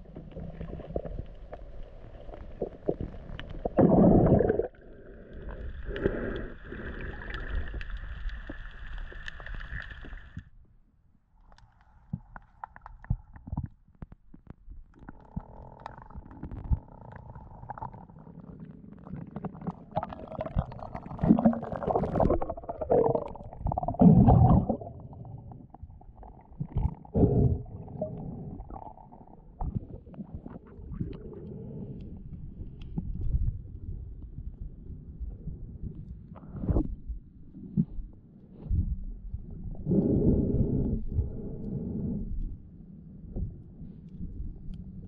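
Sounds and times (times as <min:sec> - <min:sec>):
muffled underwater water bubbling: 0:00.0 - 0:10.4, 0:15.0 - 0:36.9.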